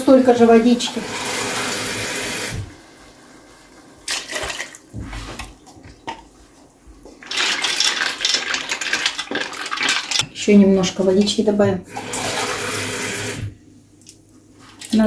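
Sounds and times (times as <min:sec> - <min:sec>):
water pouring: 0:00.6 - 0:05.5, 0:07.2 - 0:10.2, 0:11.9 - 0:13.4
pasta sloshing when stirred: 0:02.8 - 0:10.2
water pouring into a metal pot: 0:07.2 - 0:10.2.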